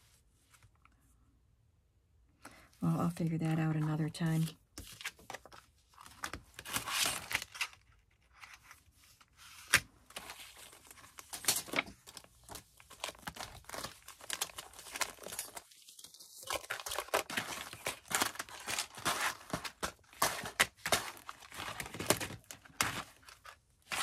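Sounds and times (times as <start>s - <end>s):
packaging crinkling and rustling: 4.8s - 24.0s.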